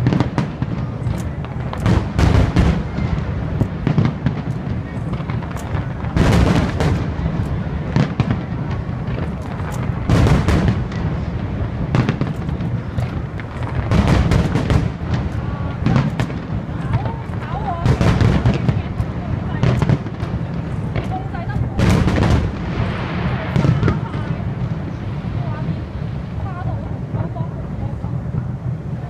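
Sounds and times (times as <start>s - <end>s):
fireworks bursting: 0.0s - 29.0s.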